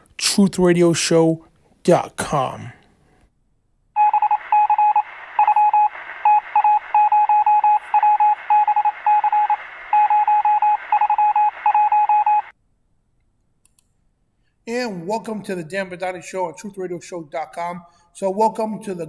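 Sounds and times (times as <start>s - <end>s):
radio static hiss: 4.0s - 12.5s
short electronic beeps: 4.0s - 12.5s.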